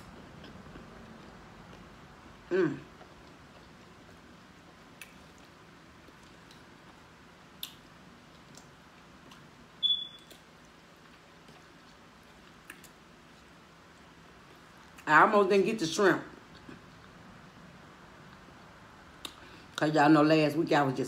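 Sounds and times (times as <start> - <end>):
chewing: 0.0 - 9.6, 10.2 - 15.0, 16.4 - 17.3
mouth clicks and smacks: 2.8 - 9.5
sharp high squeak: 9.8 - 10.3.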